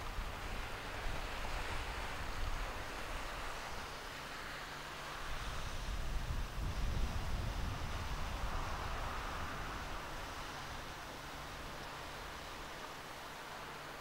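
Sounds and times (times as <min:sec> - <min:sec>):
wind buffeting microphone: 0:05.4 - 0:11.6.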